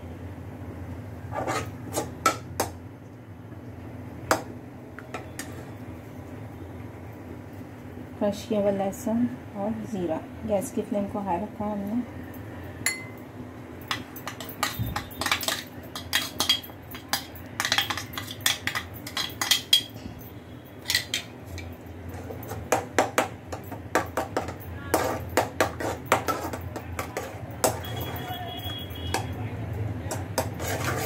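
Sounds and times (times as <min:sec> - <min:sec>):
utensil clinking against pan: 0:13.8 - 0:20.0, 0:20.8 - 0:29.4.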